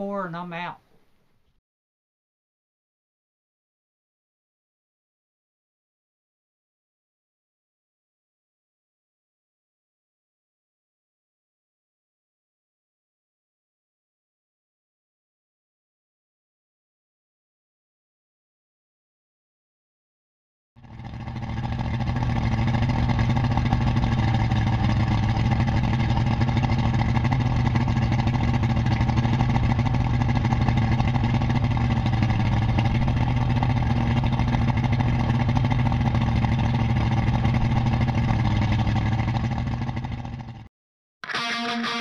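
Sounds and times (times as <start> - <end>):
outboard motor running: 20.8 - 40.7.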